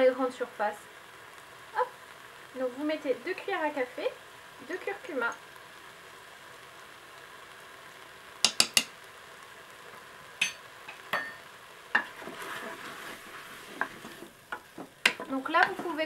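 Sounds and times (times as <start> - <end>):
food sizzling: 0.0 - 16.0
sharp taps on cooker bowl: 8.4 - 8.9.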